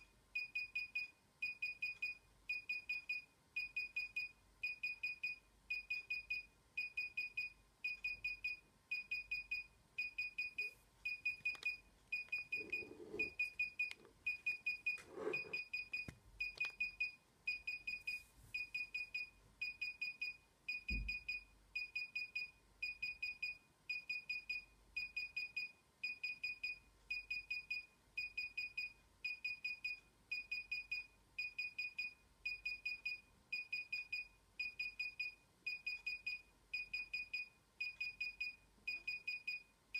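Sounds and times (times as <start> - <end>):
remote controller beeping: 5.1 - 20.0.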